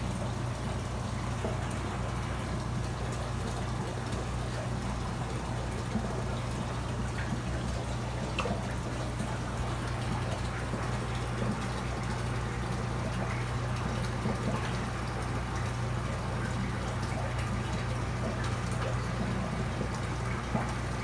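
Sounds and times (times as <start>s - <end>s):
air pump humming: 0.0s - 16.4s
water bubbling and splashing: 0.0s - 21.0s.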